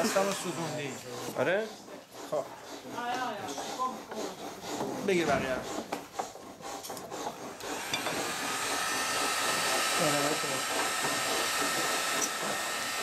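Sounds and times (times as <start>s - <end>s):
heat gun blowing with whine: 7.5s - 13.0s
heat gun switching on: 7.6s - 13.0s.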